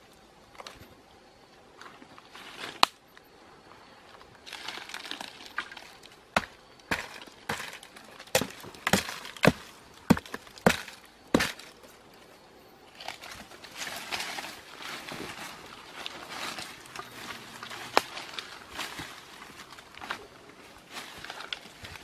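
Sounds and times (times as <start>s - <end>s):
dry leaves rustling: 4.4s - 11.8s, 12.9s - 22.0s
wood crumbling: 4.5s - 11.8s
wood cracking and knocking: 4.9s - 11.8s.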